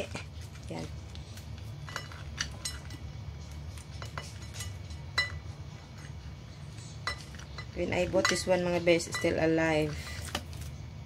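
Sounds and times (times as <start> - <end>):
low steady hum: 0.0 - 11.0
clinks against ceramic plate: 4.0 - 5.4, 7.0 - 9.5.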